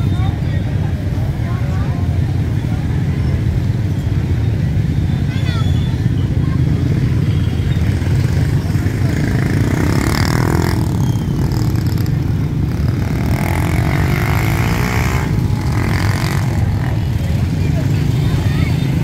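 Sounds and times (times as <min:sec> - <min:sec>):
rumble of many motorbike engines: 0:00.0 - 0:19.0
motorbike revving or passing: 0:06.2 - 0:19.0.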